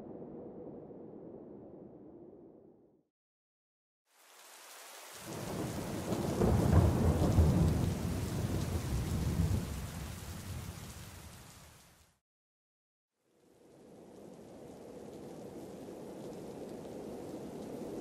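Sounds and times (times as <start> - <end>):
rain hissing: 4.1 - 12.2, 13.4 - 18.0
thunder rumbling: 5.3 - 11.1.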